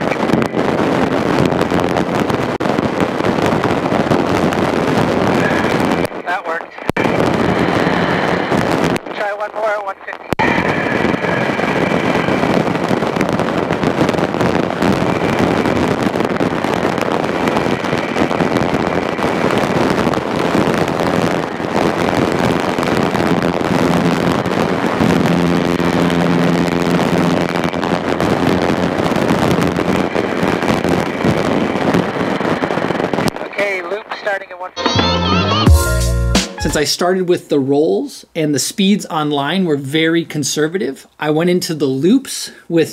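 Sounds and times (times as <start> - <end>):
airflow noise: 7.0 - 9.0, 10.5 - 32.8
steady humming tone: 23.4 - 31.8.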